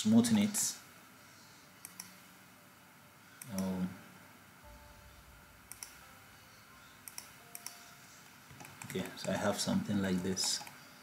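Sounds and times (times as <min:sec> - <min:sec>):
computer mouse clicking: 0:01.8 - 0:02.2, 0:05.7 - 0:06.0, 0:07.0 - 0:07.8, 0:08.5 - 0:09.6, 0:10.4 - 0:10.8.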